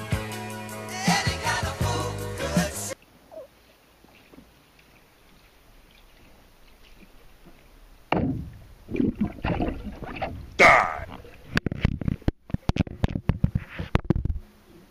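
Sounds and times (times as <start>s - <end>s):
person shouting underwater: 10.6s - 11.1s.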